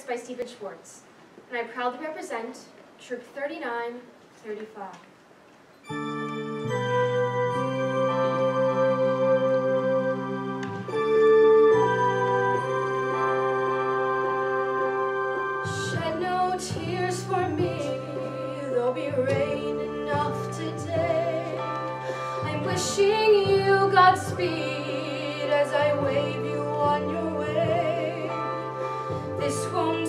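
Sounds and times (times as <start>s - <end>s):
instrumental accompaniment: 5.7s - 30.0s
woman singing ballad with vibrato: 15.7s - 30.0s.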